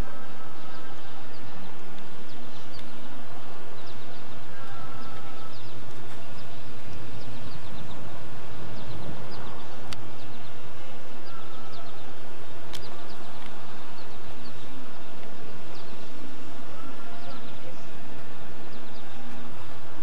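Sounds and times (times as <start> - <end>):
outdoor background noise: 0.0 - 20.0
small birds chirping: 0.0 - 20.0
sharp clicks: 12.7 - 13.6.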